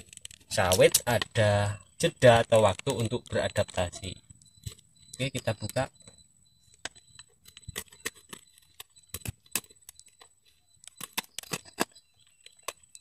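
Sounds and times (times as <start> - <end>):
knife cutting plastic packet: 7.4 - 13.0.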